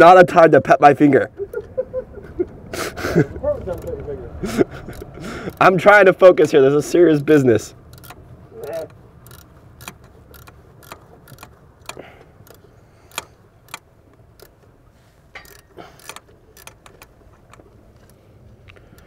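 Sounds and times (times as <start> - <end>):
wrench clicking and clinking: 3.6 - 4.0, 7.9 - 14.7, 15.3 - 19.0.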